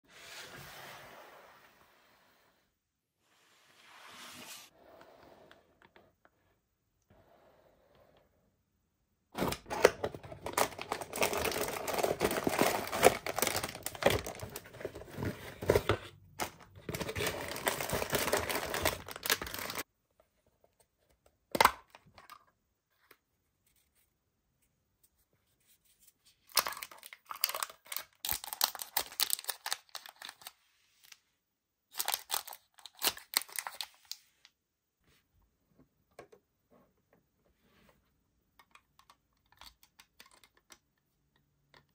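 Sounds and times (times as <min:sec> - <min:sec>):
packaging tearing and crinkling: 0:09.4 - 0:14.7, 0:16.4 - 0:19.8, 0:26.5 - 0:30.5, 0:31.9 - 0:34.2.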